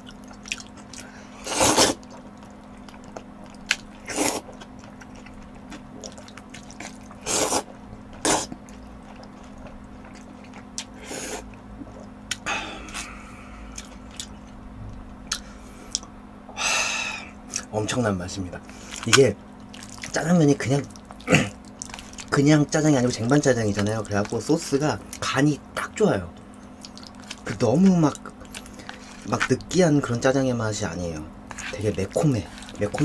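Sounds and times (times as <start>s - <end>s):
person chewing: 0.0s - 14.6s, 15.2s - 16.1s, 18.7s - 25.2s, 26.4s - 30.2s, 31.4s - 33.0s
low hum: 0.0s - 33.0s
person slurping noodles: 1.4s - 2.1s, 4.1s - 4.5s, 7.2s - 8.5s.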